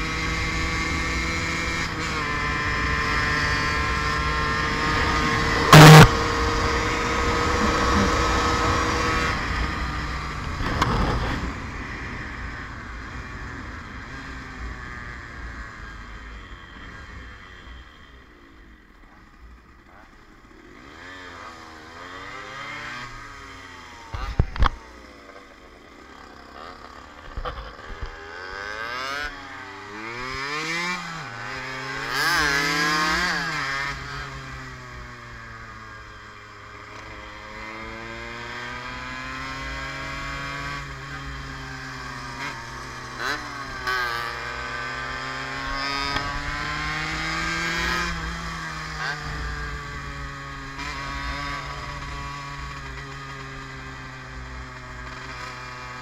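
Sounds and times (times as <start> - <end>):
two-stroke motorcycle engine: 0.0 - 56.0.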